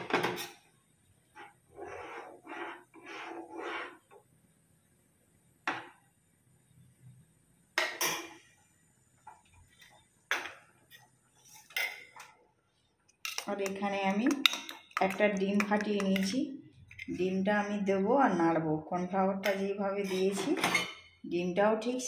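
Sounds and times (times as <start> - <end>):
metal spoon scraping a pan: 1.4 - 4.1, 13.3 - 17.4, 19.9 - 21.2.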